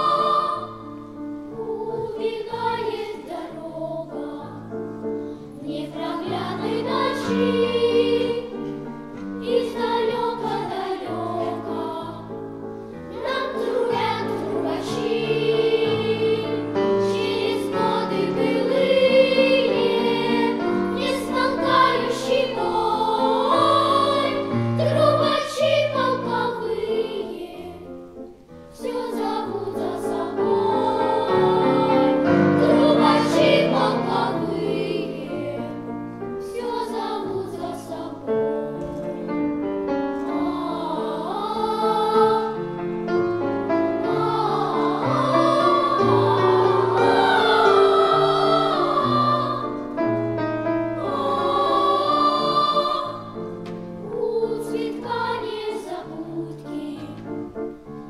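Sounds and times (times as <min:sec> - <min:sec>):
girls' choir singing: 0:00.0 - 0:57.9
piano accompaniment: 0:00.0 - 0:58.0.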